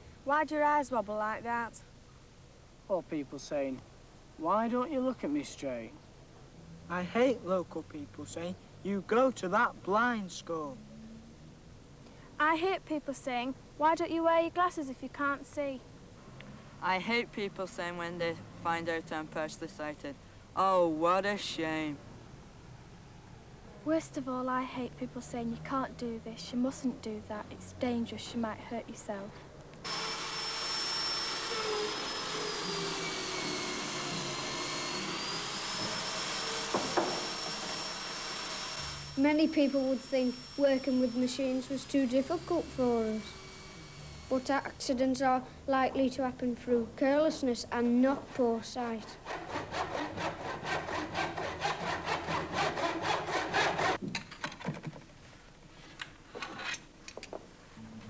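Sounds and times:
power drill boring into wood: 29.8s - 44.5s
saw cutting wood: 29.8s - 44.7s, 48.1s - 54.0s.

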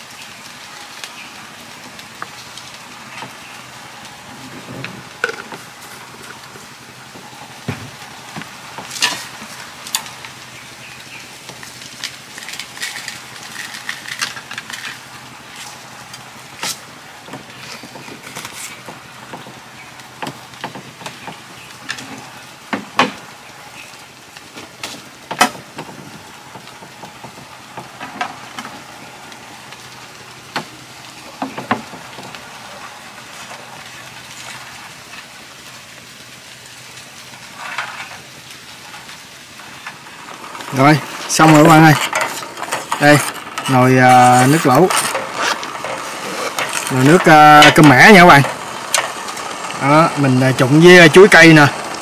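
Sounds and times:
pot hissing over fire: 0.0s - 52.0s.

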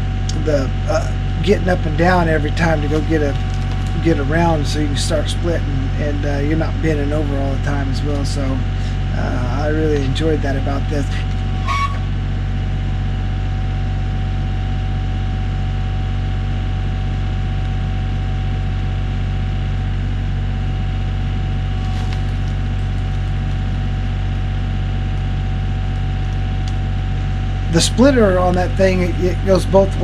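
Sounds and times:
tractor diesel engine running: 0.0s - 30.0s
faint short crackle: 21.6s - 23.9s.

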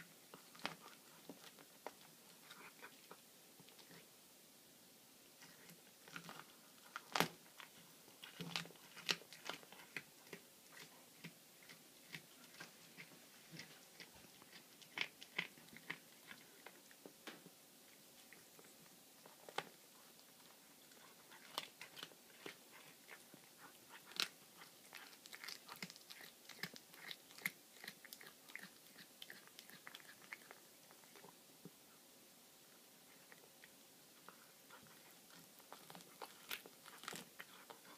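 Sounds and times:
cat crunching bones: 0.3s - 3.1s, 5.5s - 17.0s, 19.2s - 31.3s, 34.3s - 37.9s.

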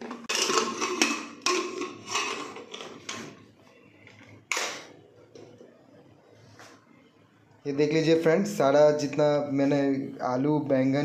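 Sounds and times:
metal lid scraping and clattering: 0.0s - 3.4s.

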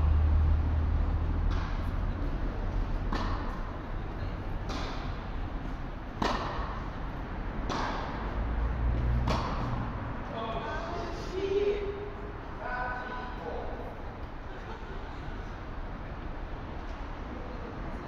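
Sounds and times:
tennis balls struck by rackets: 1.3s - 10.4s.

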